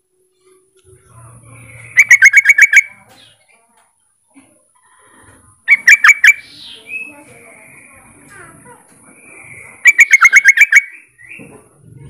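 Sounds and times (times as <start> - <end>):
bulbul bubbling call: 1.9 - 3.0, 5.7 - 6.4, 9.8 - 11.4.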